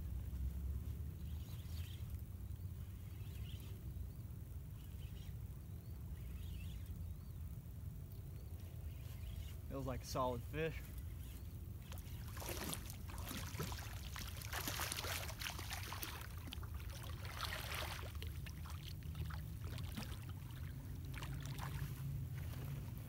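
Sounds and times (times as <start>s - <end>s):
fish splashing in water: 11.9s - 21.9s.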